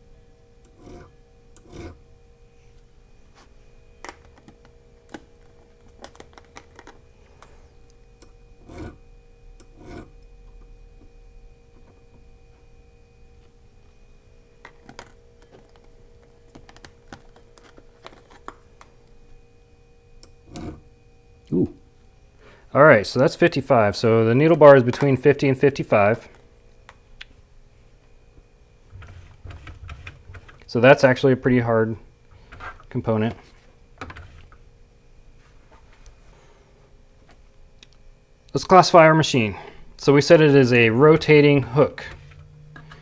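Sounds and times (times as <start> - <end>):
faint steady hum: 0.0 - 43.0
files scraping and clicking on metal: 0.6 - 2.0, 8.2 - 9.0, 9.6 - 10.2, 20.4 - 20.8.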